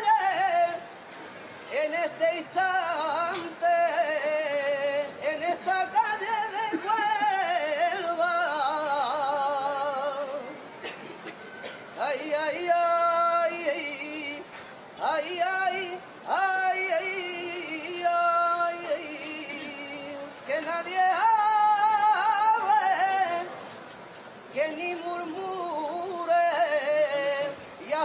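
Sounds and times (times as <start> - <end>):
person singing unaccompanied: 0.0 - 10.9, 11.6 - 28.0
singer breathing: 14.5 - 14.9.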